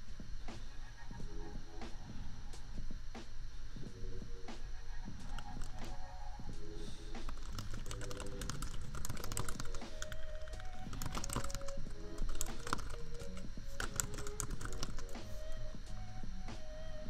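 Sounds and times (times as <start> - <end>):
laptop fan hum: 0.0 - 17.0
soft lofi music: 0.0 - 17.0
keyboard typing clicks: 5.3 - 6.0, 7.2 - 15.6.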